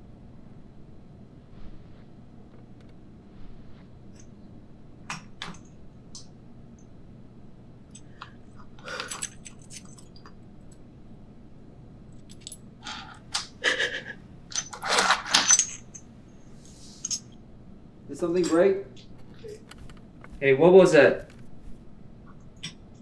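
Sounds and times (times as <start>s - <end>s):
woman sobbing: 13.6s - 14.2s.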